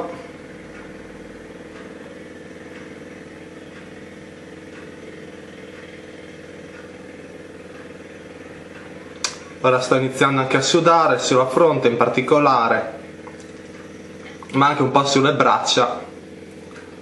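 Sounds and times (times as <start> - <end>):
steady mechanical hum: 0.0 - 17.0.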